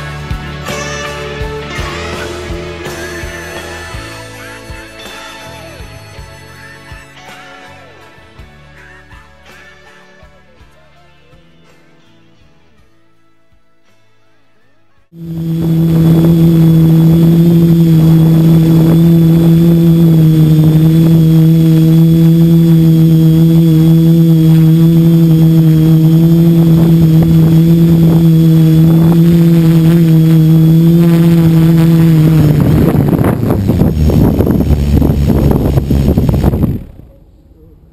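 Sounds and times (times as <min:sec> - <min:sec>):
quadcopter motors humming: 0:15.2 - 0:37.2.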